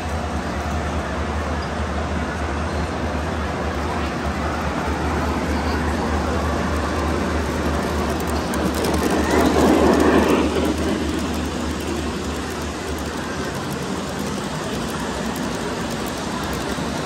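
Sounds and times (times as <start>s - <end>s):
model train running: 0.0s - 17.0s.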